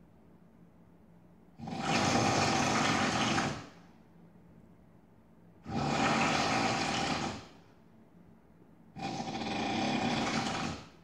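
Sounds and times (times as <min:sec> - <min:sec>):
man snoring: 0:05.7 - 0:07.5, 0:09.0 - 0:10.9.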